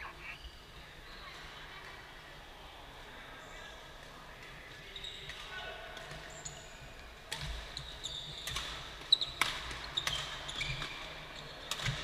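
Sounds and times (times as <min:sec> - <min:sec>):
sports shoes squeaking on court: 0:04.9 - 0:05.4, 0:07.7 - 0:12.0
rackets striking shuttlecock: 0:08.4 - 0:12.0.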